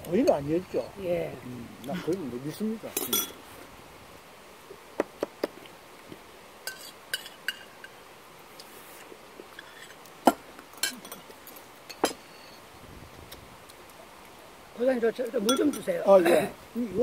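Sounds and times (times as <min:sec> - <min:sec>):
utensils clinking against ceramic bowls: 0:02.9 - 0:03.4, 0:06.7 - 0:08.0, 0:10.8 - 0:12.6, 0:15.4 - 0:16.2.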